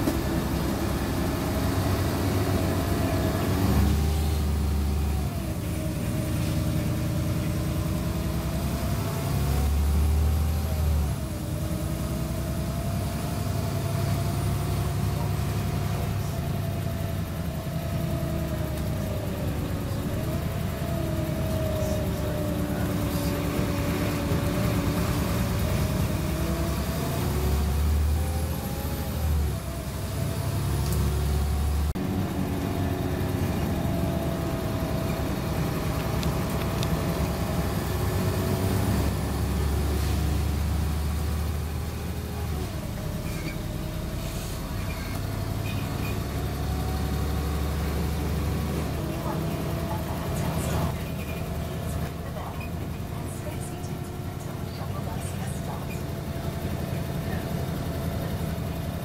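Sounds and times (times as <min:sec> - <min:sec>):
bus engine rumble: 0:00.0 - 0:59.0
drivetrain whine: 0:00.0 - 0:59.0
bus body rattles: 0:32.0 - 0:59.0.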